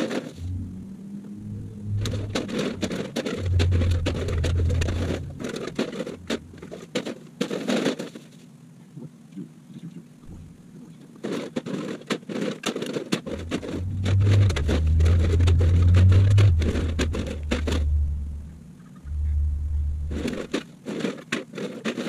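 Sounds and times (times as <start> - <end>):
loud low rumble: 0.4 - 6.6, 10.2 - 10.6, 13.4 - 20.5.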